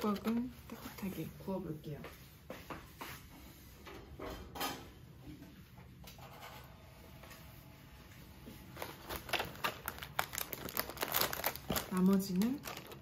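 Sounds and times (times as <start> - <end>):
plastic tray and foil crinkling: 0.0 - 1.5, 8.6 - 13.0.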